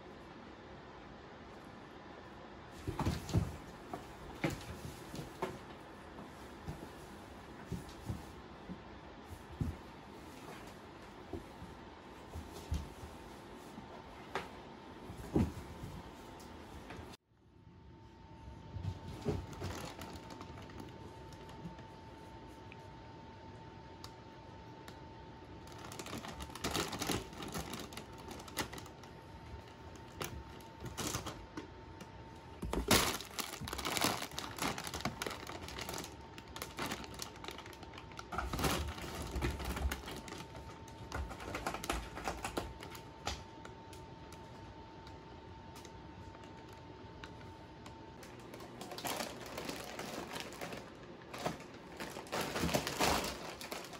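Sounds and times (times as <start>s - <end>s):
faint steady hum: 0.0s - 53.9s
plastic bags crinkling: 19.2s - 21.8s, 25.7s - 31.5s, 32.6s - 43.0s, 48.2s - 53.9s.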